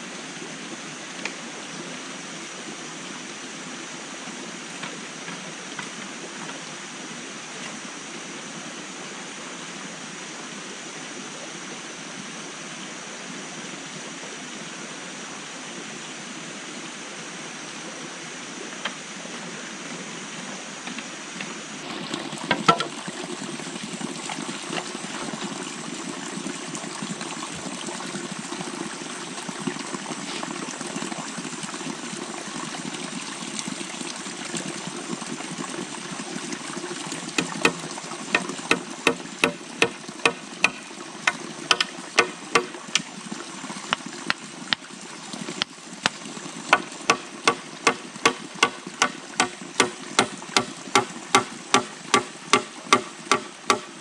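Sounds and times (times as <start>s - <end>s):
stream water running: 0.0s - 54.0s
bamboo poles knocking: 22.4s - 23.0s, 37.4s - 43.1s, 46.1s - 54.0s
bamboo poles clicking: 22.5s - 22.9s, 37.4s - 43.1s, 46.1s - 53.9s.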